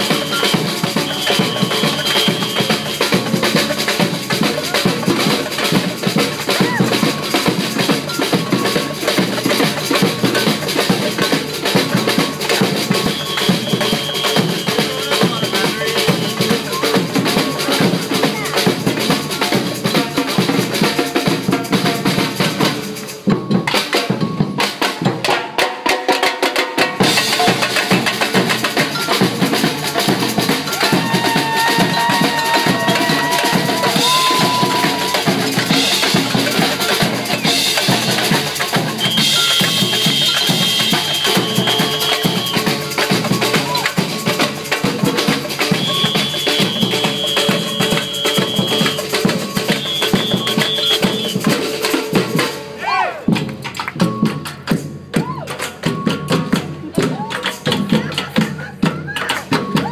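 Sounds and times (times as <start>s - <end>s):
samba percussion band: 0.0s - 59.9s
surdo bass drums: 27.0s - 39.2s.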